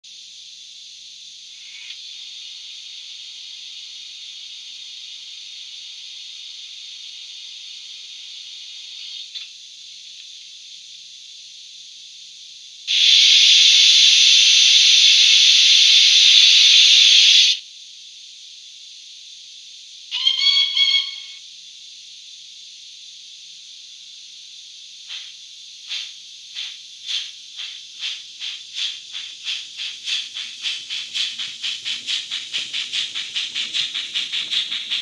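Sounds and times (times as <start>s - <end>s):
thin simmering steam hiss: 0.0s - 35.0s
loud blast of steam hiss: 12.7s - 17.6s, 19.7s - 21.6s, 23.0s - 35.0s.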